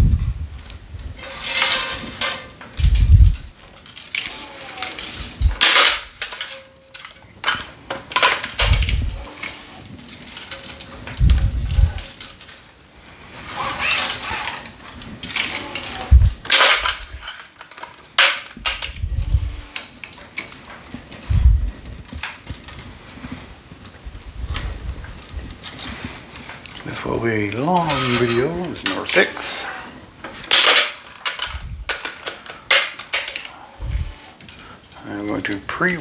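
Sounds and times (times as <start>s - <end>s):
clamps clicking and knocking: 1.2s - 12.7s, 13.4s - 21.2s, 25.6s - 34.6s
stringing machine low rumbles: 8.6s - 9.6s, 11.1s - 12.1s, 18.7s - 19.8s, 21.2s - 22.1s, 33.5s - 34.4s
string hissing through grommets: 22.8s - 30.5s.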